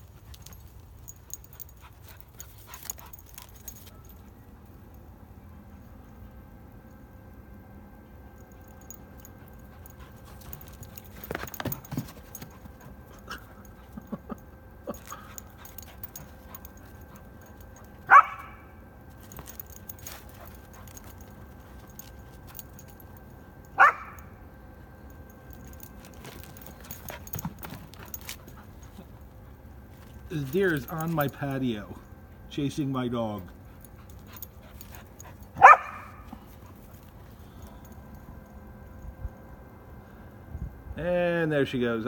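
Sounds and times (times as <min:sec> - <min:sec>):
puppy barking: 0:18.0 - 0:18.7, 0:23.8 - 0:24.3, 0:35.6 - 0:36.3.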